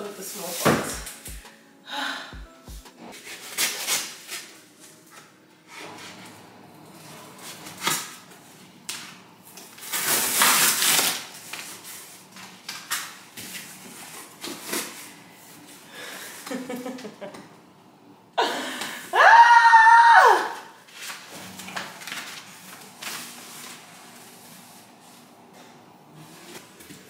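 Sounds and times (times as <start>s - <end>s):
packing tape cut with a blade: 3.2s - 4.9s, 9.8s - 15.1s.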